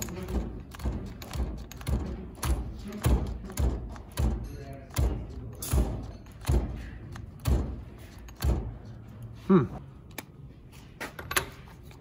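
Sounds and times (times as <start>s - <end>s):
cordless ratchet heavy thumps: 0.0s - 9.0s.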